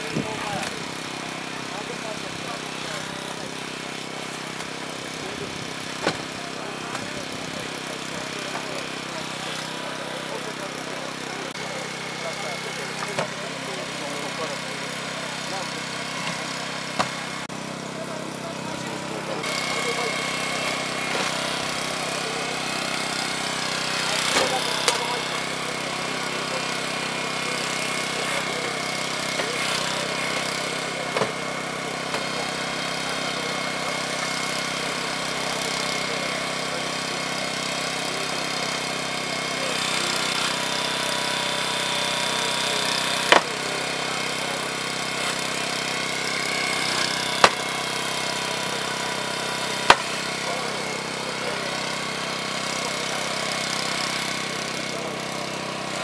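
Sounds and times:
small engine running: 0.0s - 56.0s.

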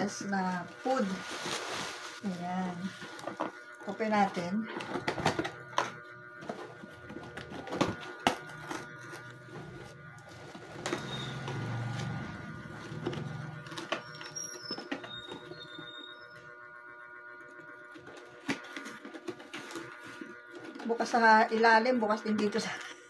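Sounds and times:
cardboard rustling and scraping: 0.6s - 3.7s.

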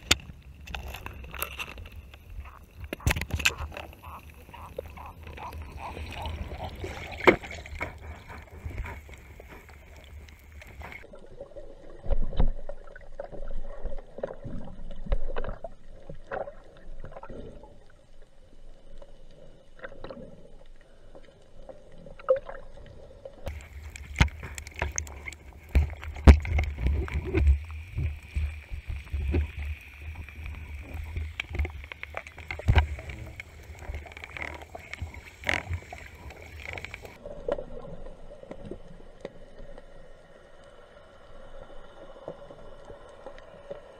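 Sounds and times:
muffled underwater noise: 0.0s - 11.0s, 23.5s - 38.2s.

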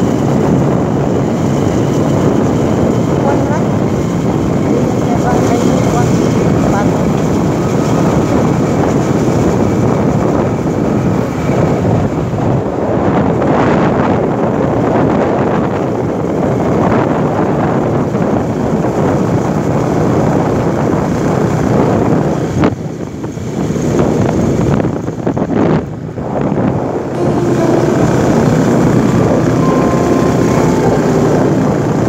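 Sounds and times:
motorcycle engine: 0.0s - 10.9s
wind on microphone: 0.0s - 30.0s
road noise: 0.0s - 32.0s.

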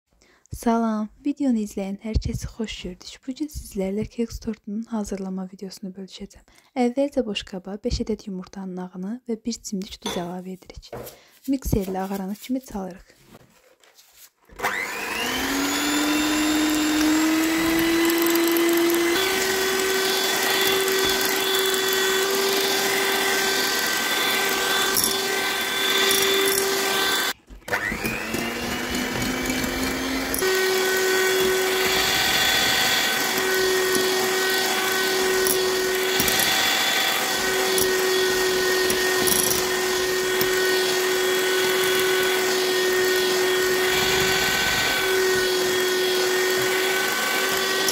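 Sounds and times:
electric hand mixer whining: 14.5s - 47.9s.

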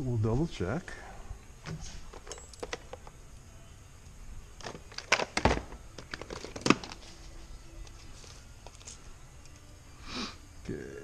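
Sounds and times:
metal tools clattering: 2.1s - 3.0s.

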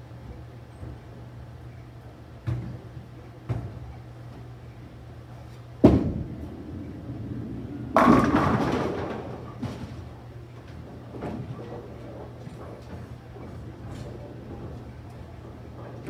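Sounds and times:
low steady hum: 3.2s - 16.0s
bowling pins crashing: 5.8s - 12.9s
bowling ball thud on lane: 7.9s - 9.9s.

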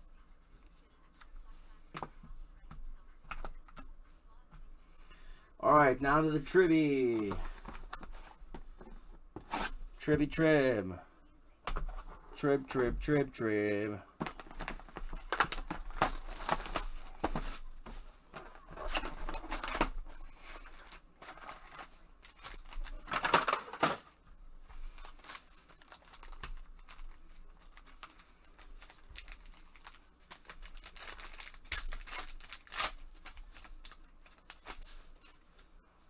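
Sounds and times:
foil wrappers tearing and crinkling: 14.3s - 17.7s, 18.4s - 24.0s, 24.8s - 35.4s.

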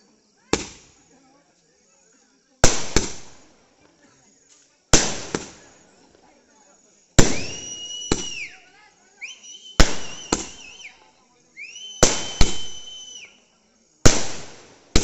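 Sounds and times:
high firework whistles: 0.4s - 1.1s, 2.6s - 3.5s, 7.2s - 15.0s
fireworks shells launching and bursting: 0.5s - 1.0s, 2.6s - 3.6s, 4.9s - 5.8s, 7.2s - 8.6s, 9.4s - 11.1s, 11.8s - 13.2s, 14.0s - 15.0s.

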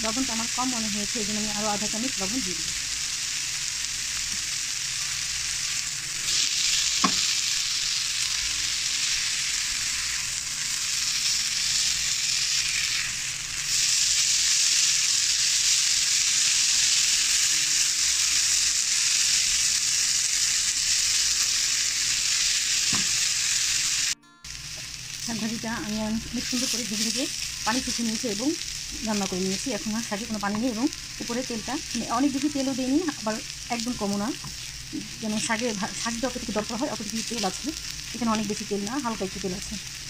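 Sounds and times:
greens sizzling in oil: 0.0s - 40.0s
spatula tapping wok: 7.0s - 7.3s.

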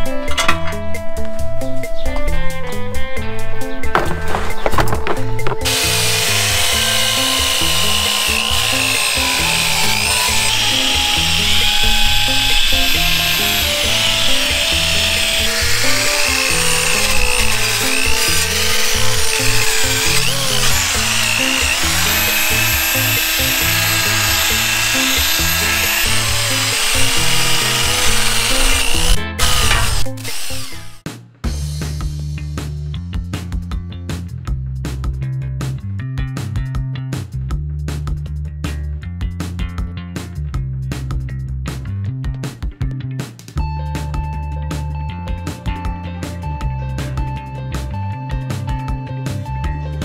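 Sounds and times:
background music with steady beat: 0.0s - 50.0s
drill wire brush on metal: 4.2s - 31.0s.

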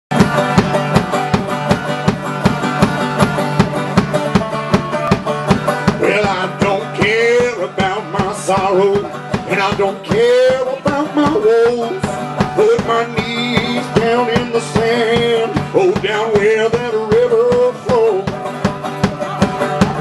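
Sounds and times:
banjo playing: 0.1s - 20.0s
man singing: 4.5s - 20.0s.

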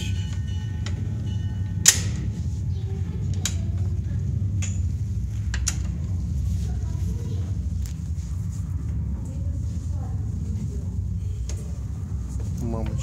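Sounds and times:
sharp metallic clanks: 0.0s - 2.6s
engine room machinery rumble: 0.0s - 13.0s.

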